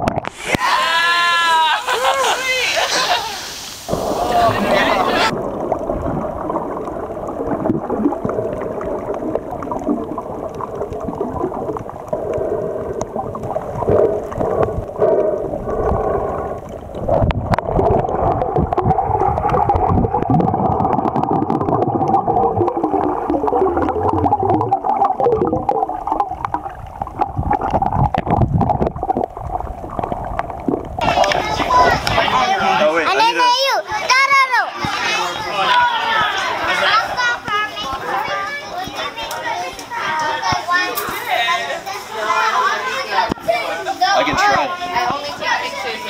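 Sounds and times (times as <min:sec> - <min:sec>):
water gurgling underwater: 0:00.0 - 0:00.6, 0:03.8 - 0:32.6.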